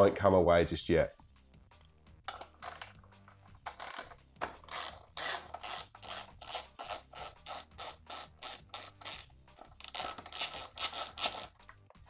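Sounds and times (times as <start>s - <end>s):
socket ratchet clicking: 3.6s - 11.8s.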